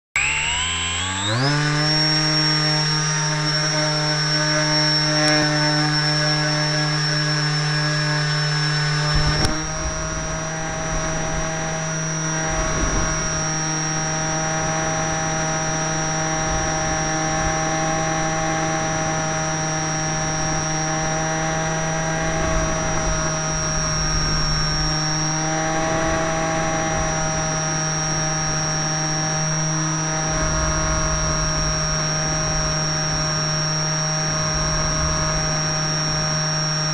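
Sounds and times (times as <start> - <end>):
model plane motor whining: 0.2 - 36.9
wind rumbling on microphone: 8.0 - 36.9.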